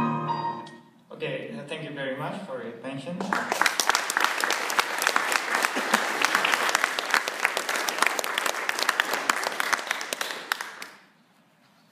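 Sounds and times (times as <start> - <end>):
audience applauding: 3.2 - 11.1.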